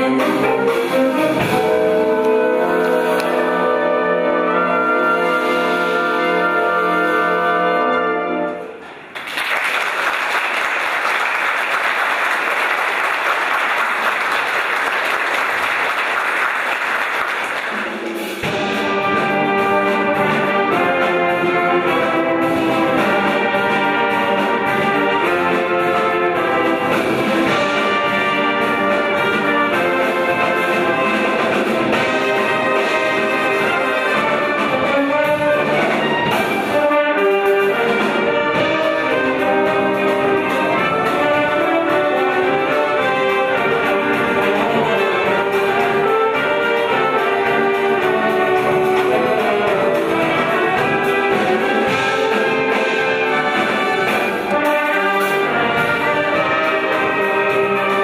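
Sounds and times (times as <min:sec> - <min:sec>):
wind band playing: 0:00.0 - 0:58.0
audience applause: 0:08.9 - 0:18.1.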